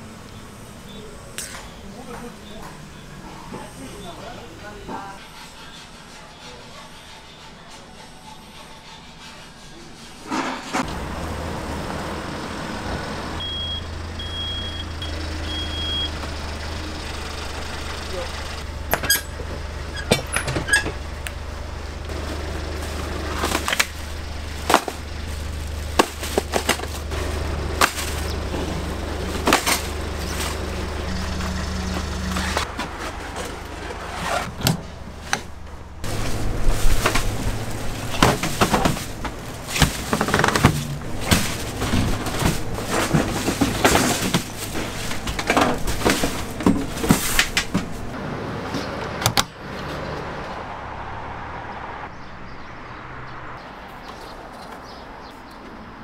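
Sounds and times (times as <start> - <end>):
low machine hum: 10.9 - 34.0
utensils and cookware clattering: 36.0 - 48.2.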